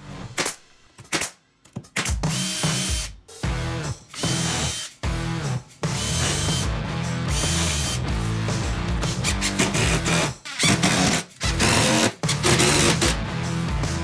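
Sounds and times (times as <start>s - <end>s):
nail gun pops: 0.4s - 2.8s
cordless drill driving screws: 4.2s - 5.0s, 9.2s - 13.2s.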